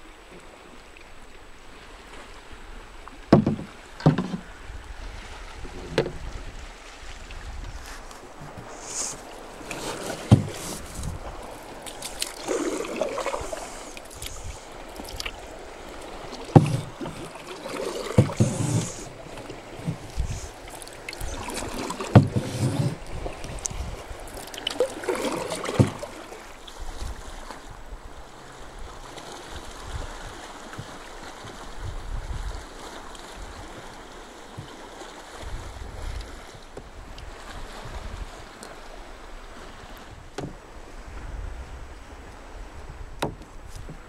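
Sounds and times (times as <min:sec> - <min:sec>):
canoe paddle strokes in water: 0:00.0 - 0:44.0
faint water noise: 0:00.0 - 0:44.0
wind noise: 0:04.3 - 0:09.3, 0:10.3 - 0:11.7, 0:12.4 - 0:15.9, 0:19.8 - 0:24.5, 0:28.8 - 0:32.7, 0:35.4 - 0:38.4, 0:40.0 - 0:44.0.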